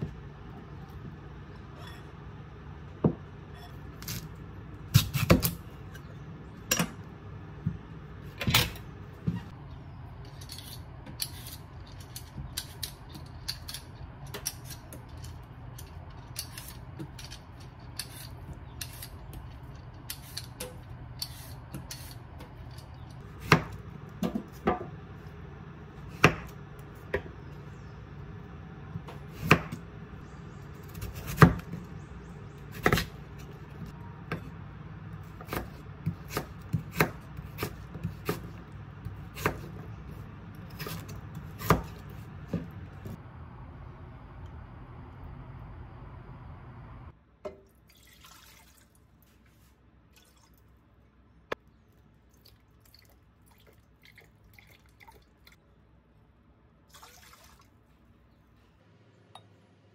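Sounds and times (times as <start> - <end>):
steady low hum: 0.0 - 47.4.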